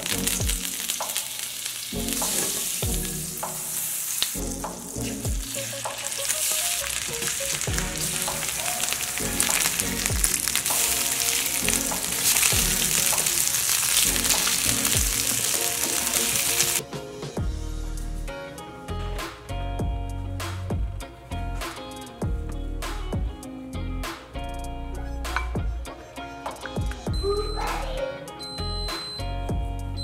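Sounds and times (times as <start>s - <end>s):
fish sizzling in frying pan: 0.0s - 16.8s.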